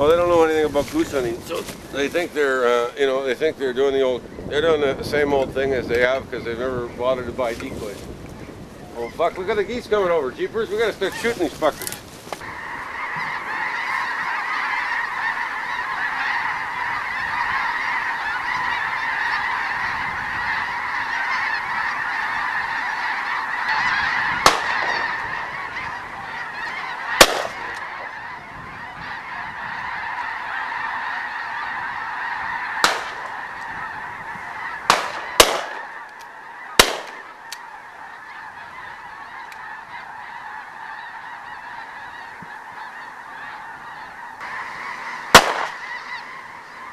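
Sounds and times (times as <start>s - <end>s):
geese honking: 0.0s - 46.9s
shotgun shots: 24.4s - 25.0s, 27.2s - 27.8s, 32.8s - 33.3s, 34.9s - 35.9s, 36.8s - 37.3s, 45.3s - 45.8s.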